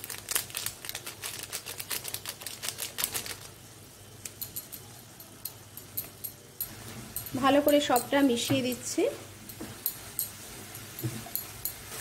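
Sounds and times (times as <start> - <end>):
vegetables frying in butter: 6.6 - 12.0.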